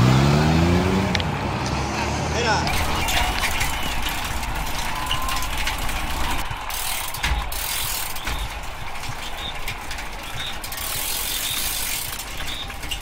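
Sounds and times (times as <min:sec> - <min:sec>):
tyres hissing on asphalt: 0:02.4 - 0:13.0
freewheel hubs ticking: 0:02.7 - 0:13.0.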